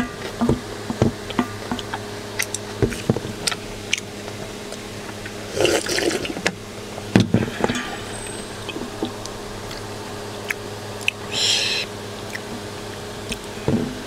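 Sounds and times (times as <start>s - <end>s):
eating noises: 1.7s - 6.5s, 7.6s - 12.7s
slurping broth from metal bowl: 5.5s - 6.4s.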